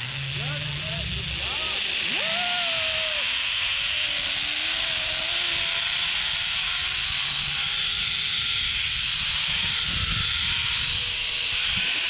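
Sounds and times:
zipline trolley hissing on cable: 0:00.0 - 0:12.0
wind buffeting microphone: 0:08.0 - 0:11.9.

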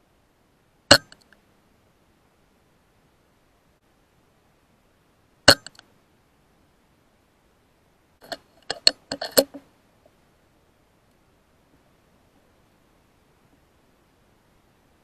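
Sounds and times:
sharp metallic clicks: 0:00.9 - 0:01.4, 0:05.5 - 0:05.9, 0:08.2 - 0:09.6.

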